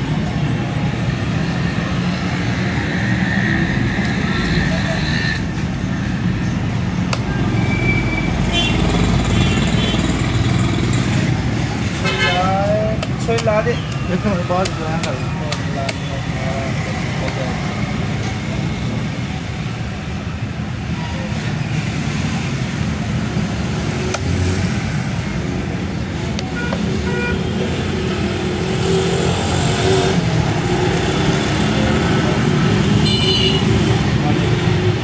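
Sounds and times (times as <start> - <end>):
traffic rumble: 0.0 - 35.0.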